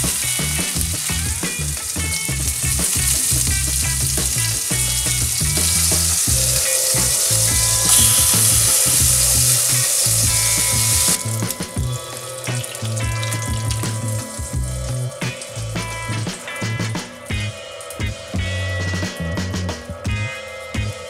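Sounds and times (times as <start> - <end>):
spatula turning patties: 0.0 - 14.4
patties sizzling in frying pan: 0.0 - 15.9
background music: 0.0 - 21.0.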